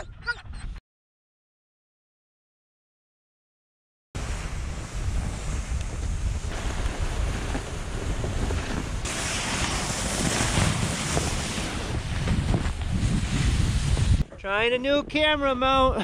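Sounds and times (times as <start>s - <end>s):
sled runners hissing over snow: 4.2s - 14.2s
wind rushing over microphone: 4.2s - 16.0s.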